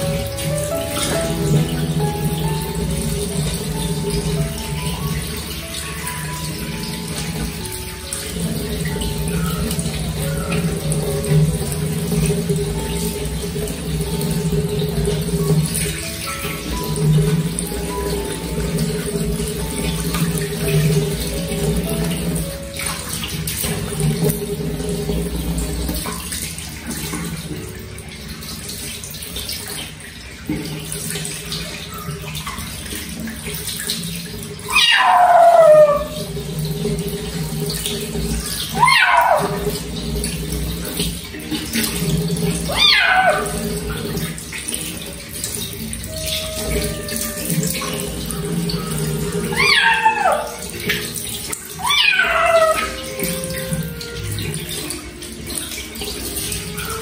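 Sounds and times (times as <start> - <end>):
running tap water splashing: 0.0 - 57.0
kitten meowing: 34.7 - 36.2, 42.7 - 43.5, 49.5 - 50.6, 51.8 - 53.0.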